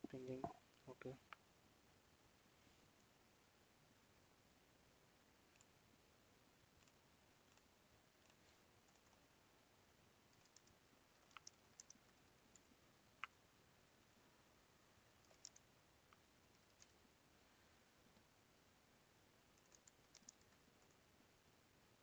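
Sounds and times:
computer keyboard keystrokes: 10.4s - 12.7s, 15.2s - 15.6s, 19.6s - 21.0s.

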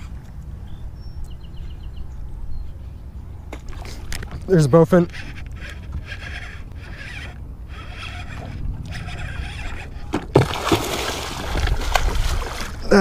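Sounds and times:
fish splashing at water surface: 10.4s - 12.8s.

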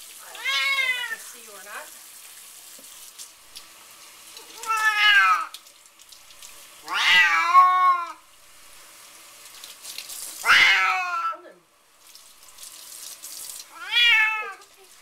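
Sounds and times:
cat meowing: 0.2s - 1.2s, 4.4s - 5.5s, 6.8s - 8.2s, 10.4s - 11.4s, 13.7s - 14.9s.

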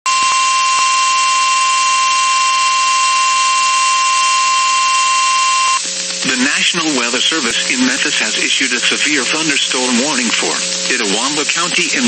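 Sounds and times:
high alarm beep: 0.1s - 5.8s
radio static hiss: 0.1s - 12.0s.

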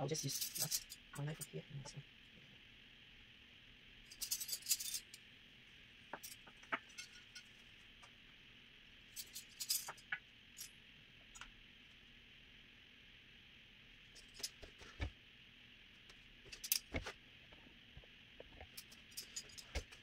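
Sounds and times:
metal cutlery clinking: 4.2s - 5.1s, 6.2s - 7.5s.

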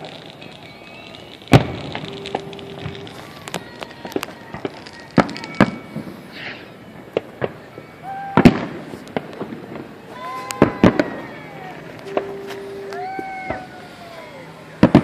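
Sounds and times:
gliding pitched tones: 0.0s - 5.0s
firework shells bursting: 0.0s - 15.0s.

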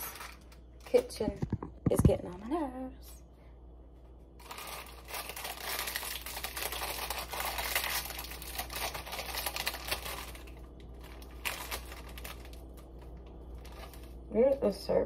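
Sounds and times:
foil wrapper crinkling: 0.0s - 1.8s, 4.4s - 14.6s.

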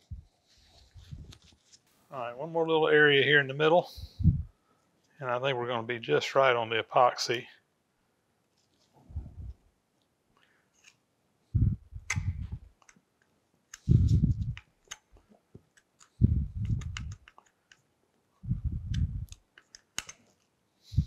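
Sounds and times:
gloved hands rubbing: 0.0s - 2.1s, 13.8s - 15.2s, 15.8s - 17.5s
small sharp clicks: 12.0s - 13.9s, 18.9s - 20.5s.

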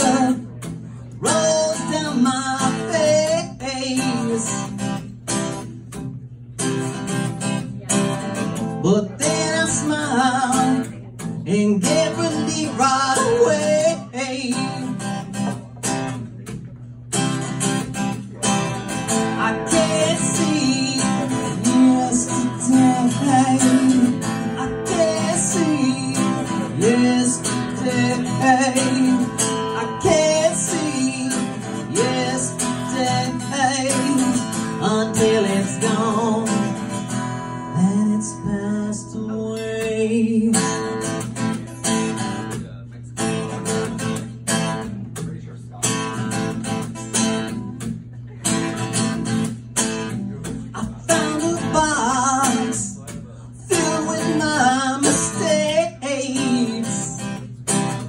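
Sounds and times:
man singing: 0.0s - 5.0s, 8.8s - 15.6s, 18.4s - 41.6s, 50.3s - 57.5s
acoustic guitar strumming: 0.0s - 58.0s.

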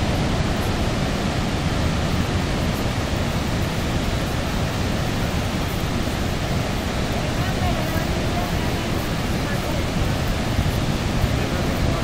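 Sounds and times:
waterfall roar: 0.0s - 12.0s.

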